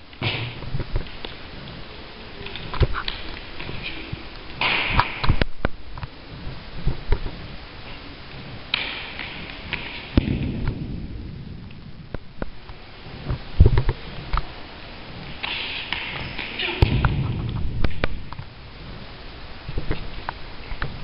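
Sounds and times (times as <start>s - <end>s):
ball striking and bouncing: 8.7s - 11.0s, 15.4s - 18.4s.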